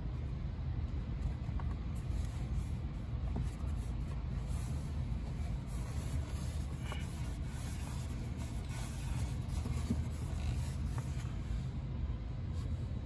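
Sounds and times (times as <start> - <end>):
steady low rumble: 0.0 - 13.0
cloth wiping plastic screen: 1.9 - 11.7.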